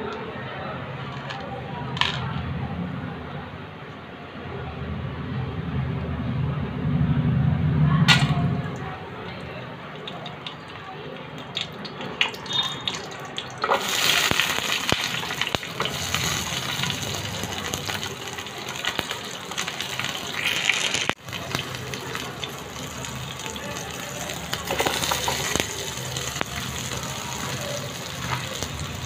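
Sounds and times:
oil sizzling in a frying pan: 0:11.4 - 0:29.0.

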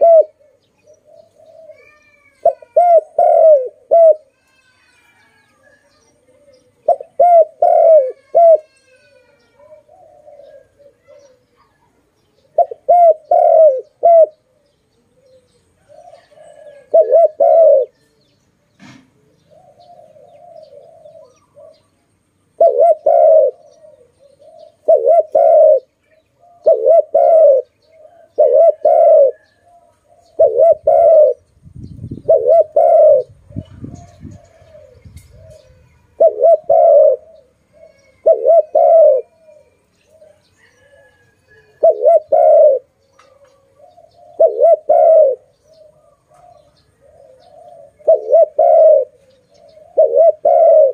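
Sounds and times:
dove cooing: 0:00.0 - 0:18.3, 0:19.2 - 0:50.9.

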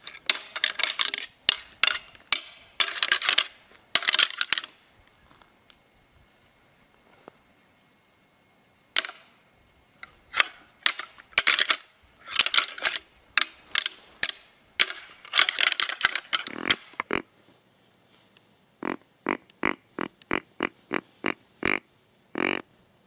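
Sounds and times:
crackling and snapping rustles: 0:00.0 - 0:05.8, 0:10.0 - 0:18.5.

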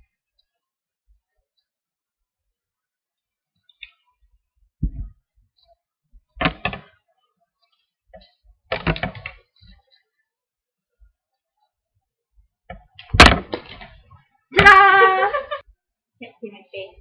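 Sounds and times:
dull thump: 0:13.1 - 0:13.9.

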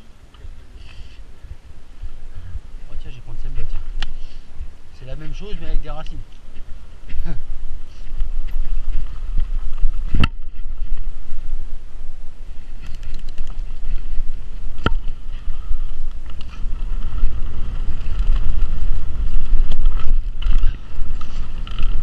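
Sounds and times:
bike rumbling and rattling: 0:00.0 - 0:22.0
wind buffeting microphone: 0:00.0 - 0:22.0
small clicks: 0:12.8 - 0:13.7.

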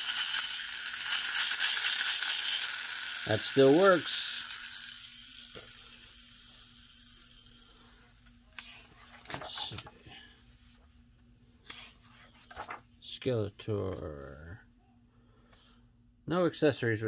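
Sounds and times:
book pages flipping: 0:08.3 - 0:09.9, 0:10.6 - 0:12.9
paper rustle: 0:11.7 - 0:12.8.

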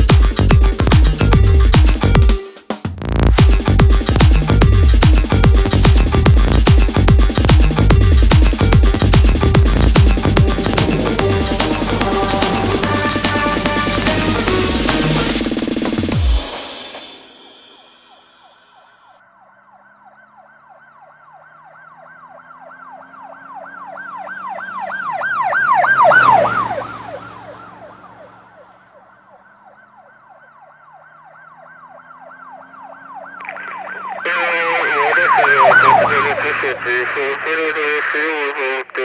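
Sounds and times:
siren in fast yelp: 0:08.5 - 0:15.9, 0:17.8 - 0:39.0.

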